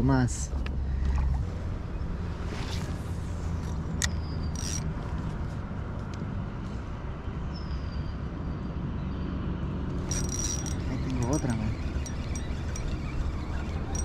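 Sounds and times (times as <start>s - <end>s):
fishing rod cast click: 3.6s - 4.9s
spinning reel cranking: 4.5s - 4.8s, 10.0s - 14.0s.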